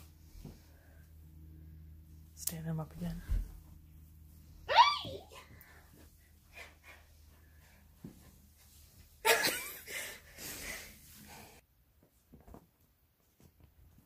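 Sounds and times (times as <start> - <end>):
person laughing breathily: 9.2 - 11.0.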